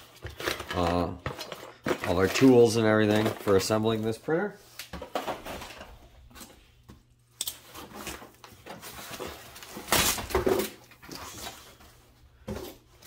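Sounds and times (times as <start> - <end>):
foam and cardboard rustling: 7.7 - 13.0.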